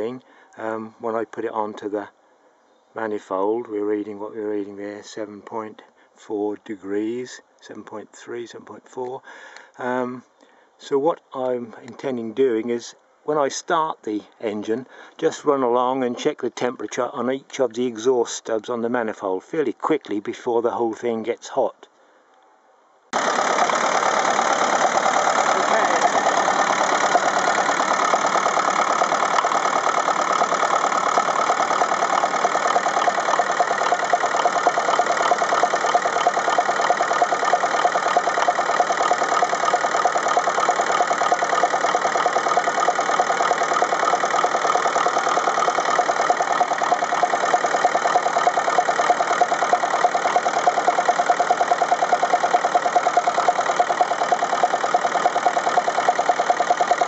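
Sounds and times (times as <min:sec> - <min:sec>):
diesel engine idling unevenly: 0:23.2 - 0:57.0.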